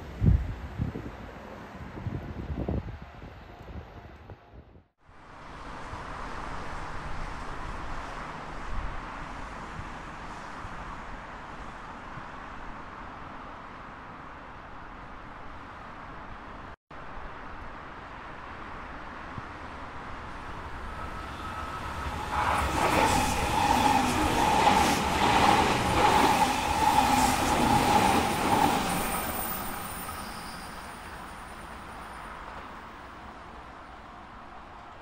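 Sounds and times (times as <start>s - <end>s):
high whine of train: 0.0s - 35.0s
train rumble: 19.4s - 35.0s.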